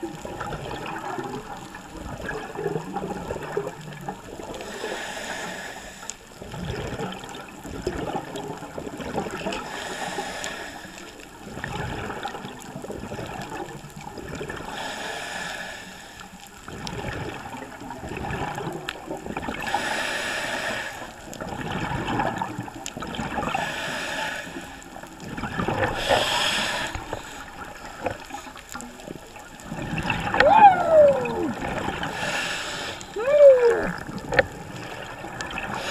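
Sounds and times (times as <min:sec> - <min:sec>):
exhaled bubbles rushing: 0:00.0 - 0:04.6, 0:06.4 - 0:09.5, 0:16.7 - 0:19.7, 0:21.4 - 0:23.6, 0:25.2 - 0:26.3, 0:27.1 - 0:32.4, 0:33.1 - 0:35.9
diver breathing through regulator: 0:04.6 - 0:06.2, 0:09.6 - 0:11.1, 0:14.7 - 0:16.3, 0:19.7 - 0:21.1, 0:23.5 - 0:24.8, 0:25.8 - 0:27.6, 0:32.0 - 0:33.2, 0:35.6 - 0:35.9.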